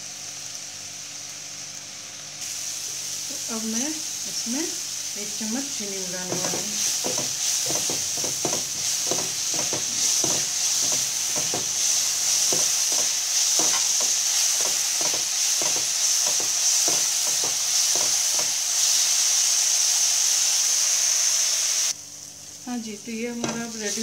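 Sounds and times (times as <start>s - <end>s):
apple sizzling in a pan: 0.0s - 24.0s
spatula stirring and scraping: 6.1s - 18.9s.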